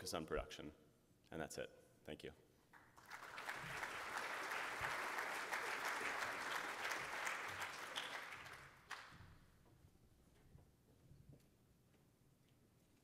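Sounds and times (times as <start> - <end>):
audience applauding: 2.8 - 9.3.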